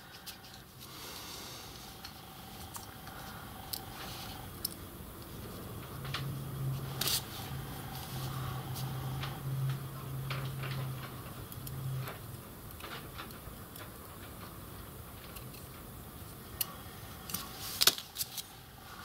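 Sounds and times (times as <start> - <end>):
low steady hum: 0.0 - 19.0
small metal parts clicking: 4.6 - 4.8, 10.2 - 15.9.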